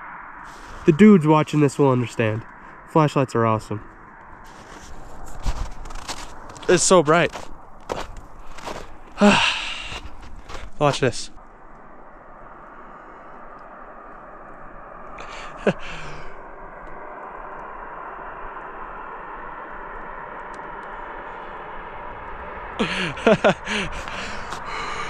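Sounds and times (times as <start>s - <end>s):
man sighing: 9.2s - 10.7s, 15.2s - 16.4s, 22.8s - 25.0s.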